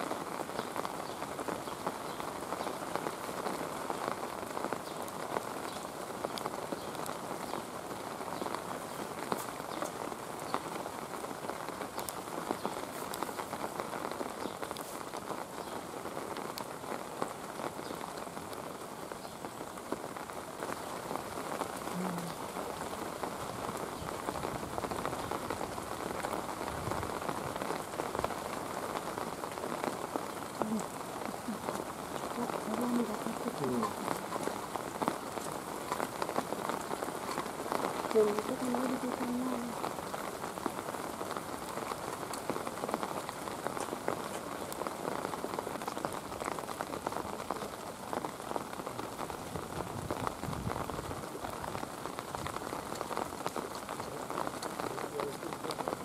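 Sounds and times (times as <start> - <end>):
steady rain falling: 0.0 - 56.0.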